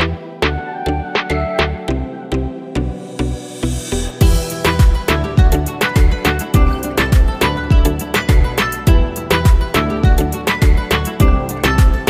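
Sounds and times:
kick drum hits: 0:04.2 - 0:12.0.

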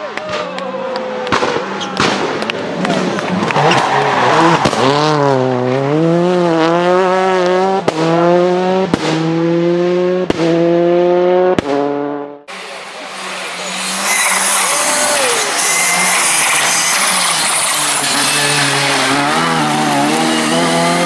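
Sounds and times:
rally car engine: 0:00.0 - 0:21.0
sharp cracks: 0:01.2 - 0:04.9.

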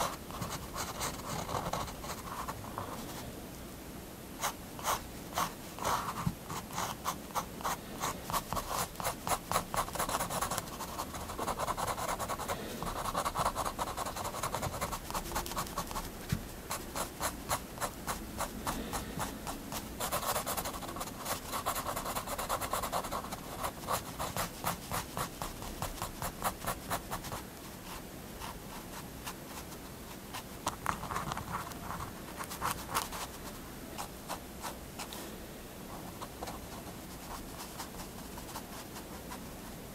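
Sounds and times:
pen scratching on paper: 0:00.0 - 0:02.6, 0:04.4 - 0:16.1, 0:16.7 - 0:27.4, 0:30.3 - 0:34.8.

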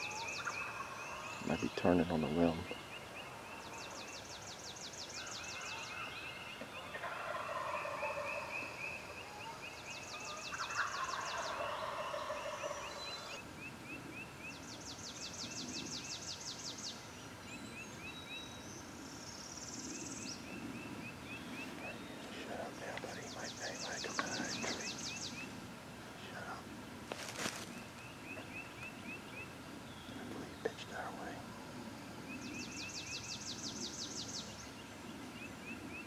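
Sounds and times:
songbirds trilling and chirping: 0:00.0 - 0:36.0
turkey gobbling: 0:00.1 - 0:01.2, 0:06.8 - 0:08.6, 0:10.6 - 0:13.3.

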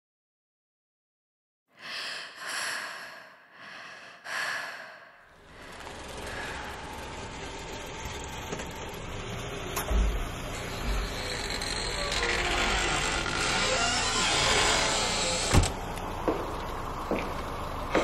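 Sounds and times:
loud breathing: 0:01.8 - 0:07.4.

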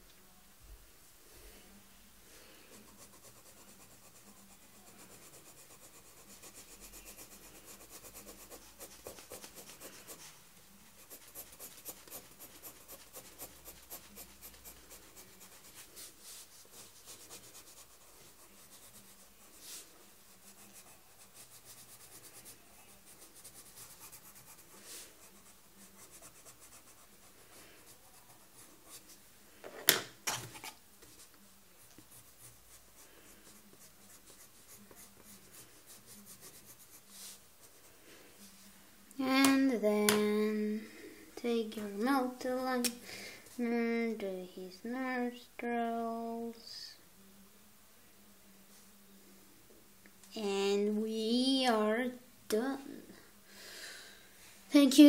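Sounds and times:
pencil scratching on paper: 0:02.7 - 0:10.4, 0:11.0 - 0:29.2, 0:30.6 - 0:37.9.

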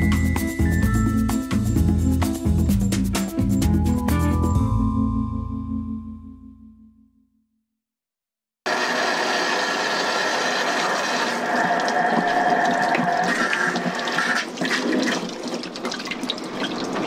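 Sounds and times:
tap water splashing into sink: 0:11.0 - 0:17.0.

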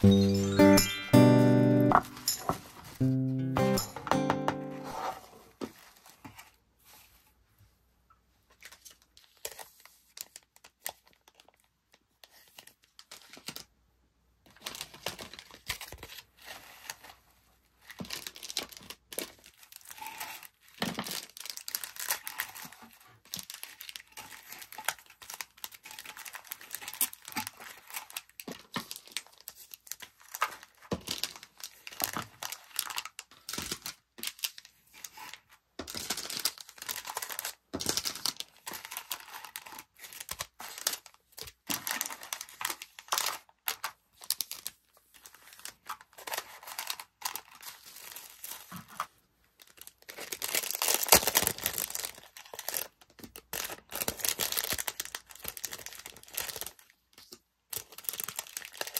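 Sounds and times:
packing materials rustling: 0:17.9 - 0:56.9, 0:57.7 - 0:58.9.

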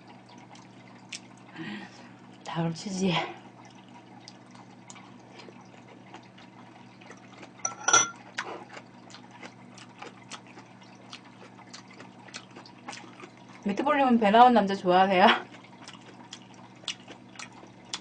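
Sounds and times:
wet chewing mouth sounds: 0:04.3 - 0:07.6, 0:08.2 - 0:13.7, 0:15.4 - 0:18.0
spoon clinking on ceramic bowl: 0:07.6 - 0:08.2.

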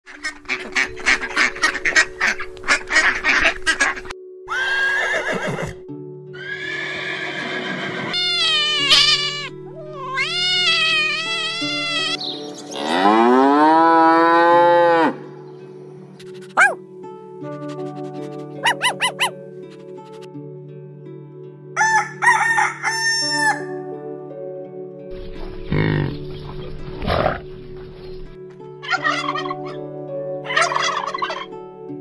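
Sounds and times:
ducks quacking: 0:00.1 - 0:04.2, 0:17.6 - 0:19.3, 0:28.8 - 0:29.8, 0:30.5 - 0:31.5
farm animal calls: 0:00.1 - 0:05.5, 0:06.4 - 0:13.8, 0:16.2 - 0:16.8, 0:18.6 - 0:19.3, 0:28.8 - 0:29.8, 0:30.5 - 0:31.5
light background music: 0:00.1 - 0:32.0
cow mooing: 0:12.8 - 0:15.2.

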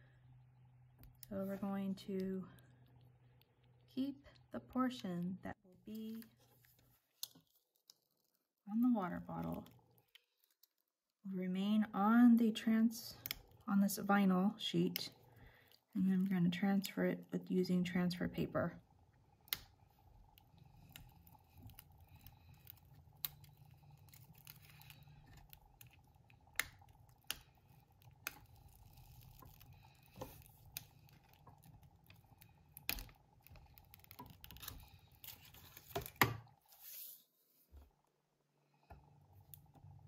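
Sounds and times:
faint steady hum: 0:00.0 - 0:40.0
vinyl peeling clicks and crinkles: 0:05.9 - 0:08.5, 0:09.2 - 0:10.9, 0:19.4 - 0:36.5.

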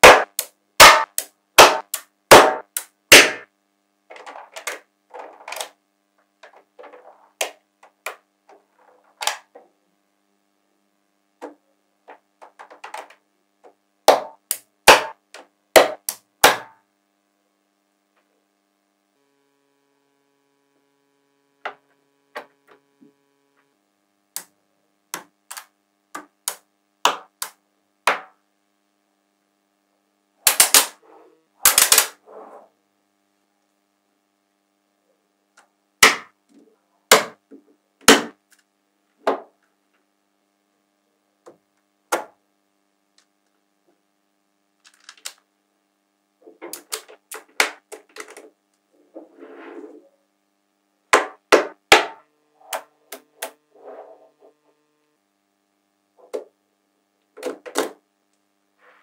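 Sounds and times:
magnetic balls clicking together: 0:00.2 - 0:03.0.

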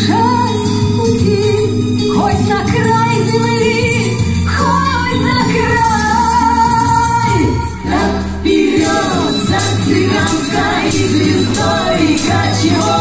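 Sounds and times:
lively dance tune with jingling: 0:05.2 - 0:13.0.

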